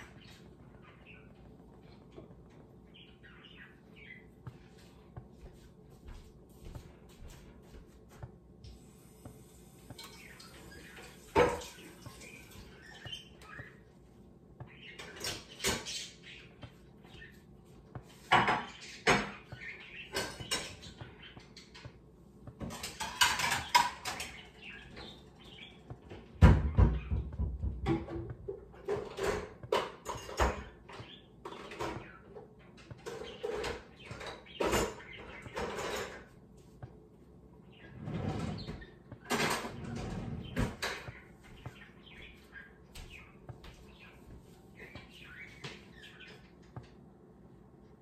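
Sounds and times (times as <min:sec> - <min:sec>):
dishes and pots clattering: 0:09.9 - 0:12.7, 0:22.6 - 0:24.3.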